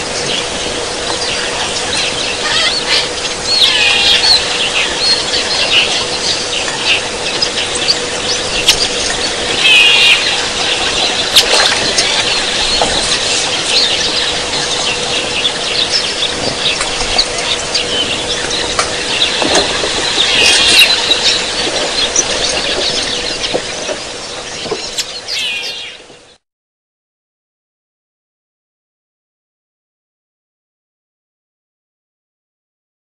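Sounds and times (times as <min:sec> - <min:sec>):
birds chirping: 0:00.0 - 0:26.4
low electrical hum: 0:00.0 - 0:26.4.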